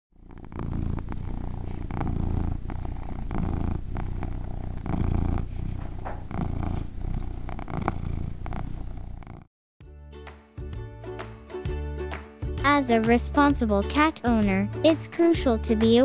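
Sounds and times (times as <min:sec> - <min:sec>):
cat purring: 0:00.1 - 0:09.5.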